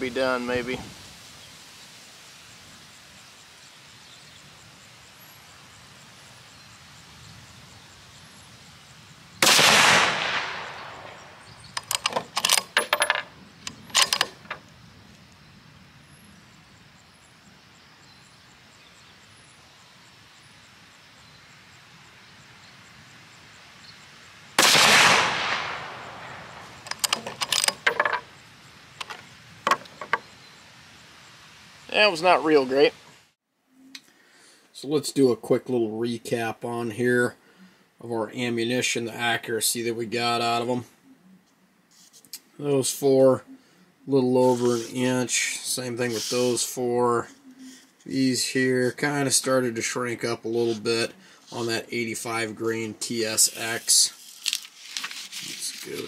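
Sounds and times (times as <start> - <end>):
rifle shots: 9.4 - 11.4, 24.6 - 26.9
rifle bolt metallic clicks: 11.8 - 14.6, 26.9 - 28.2.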